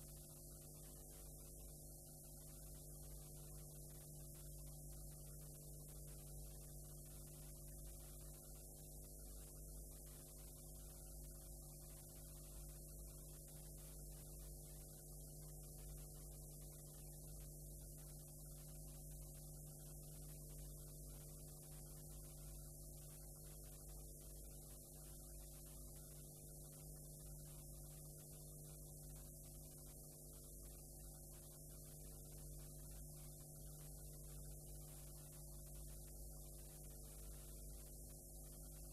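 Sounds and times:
faint tape hiss: 0.0s - 9.6s
low electrical hum: 0.0s - 38.9s.

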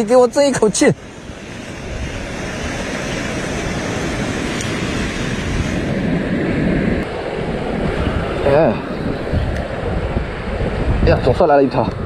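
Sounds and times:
wind on microphone: 0.0s - 12.0s
surf breaking on rocks: 0.6s - 11.2s.

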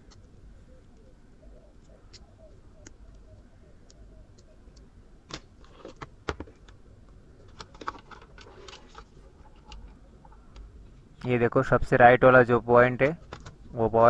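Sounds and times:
cable rustling: 7.4s - 10.5s.

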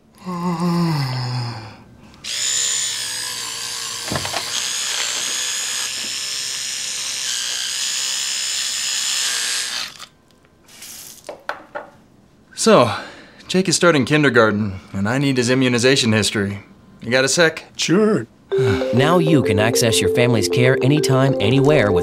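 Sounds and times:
electric toothbrush buzzing: 2.2s - 10.1s.

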